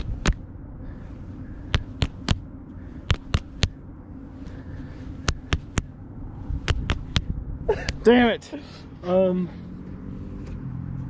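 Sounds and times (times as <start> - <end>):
fists slapping into palms: 0.0 - 0.4, 1.6 - 2.4, 3.0 - 3.8, 5.2 - 5.9, 6.6 - 8.0.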